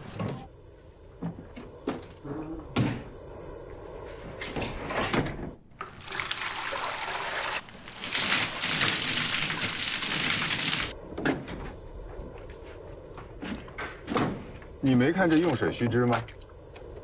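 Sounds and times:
water poured and splashing: 0:05.7 - 0:11.0.

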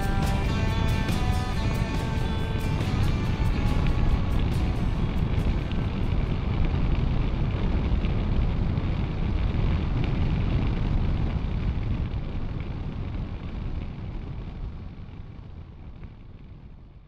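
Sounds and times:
motorcycle engine running: 0:00.0 - 0:06.5
wind rushing over microphone: 0:00.0 - 0:16.8.

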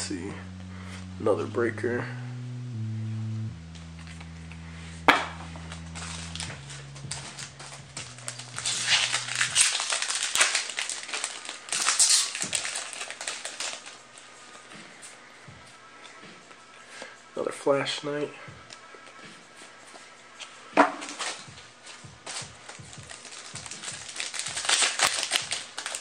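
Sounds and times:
low background tones: 0:00.0 - 0:20.8
foil wrapper crinkling: 0:05.7 - 0:14.3, 0:22.2 - 0:26.0.

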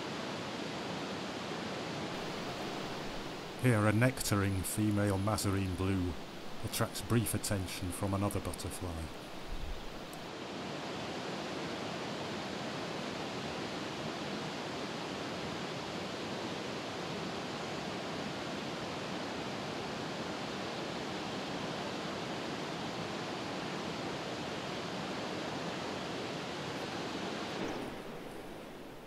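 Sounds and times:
outdoor background hiss: 0:00.0 - 0:29.0.

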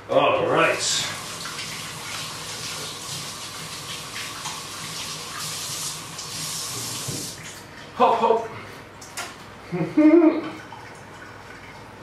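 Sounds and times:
tap running into a sink: 0:05.4 - 0:07.6.

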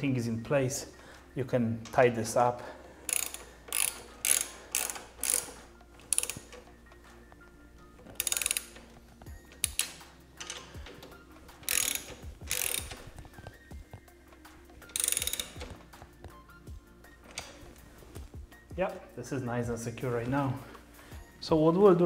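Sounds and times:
cable ties zipping: 0:03.1 - 0:16.3.

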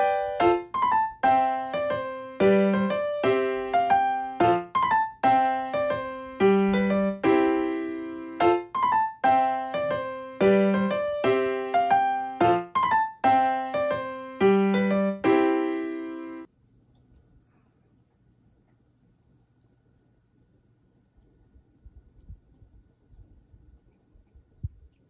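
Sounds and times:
light piano tune: 0:00.0 - 0:16.5.

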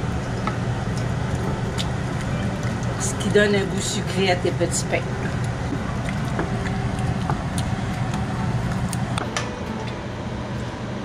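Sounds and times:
low steady hum: 0:00.0 - 0:11.0
wooden spoon stirring in pot: 0:00.4 - 0:09.2.

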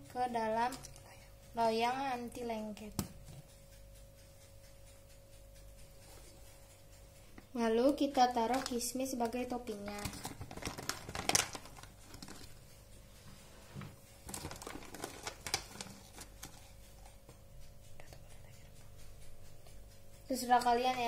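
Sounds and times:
plastic bag crinkling: 0:09.9 - 0:12.6, 0:14.2 - 0:16.6.

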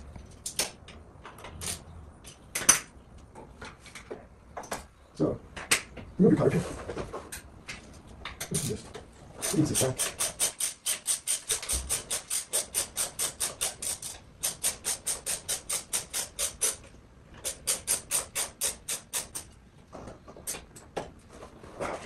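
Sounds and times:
hand ratchet clicking: 0:09.4 - 0:19.5.

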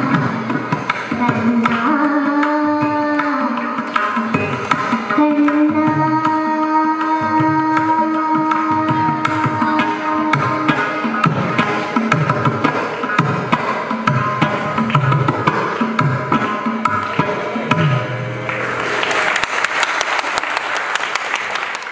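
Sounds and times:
hand drums playing: 0:00.0 - 0:19.4
applause: 0:18.4 - 0:21.9.

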